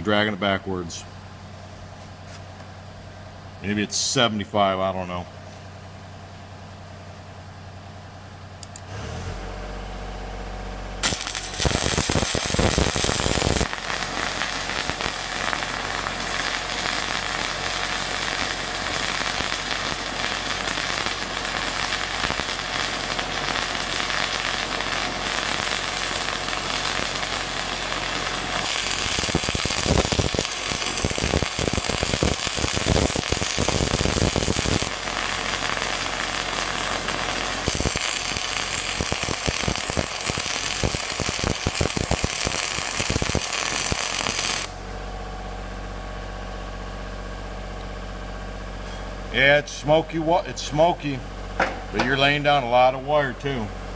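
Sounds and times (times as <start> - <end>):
crackling welding arc: 11.0 - 44.8.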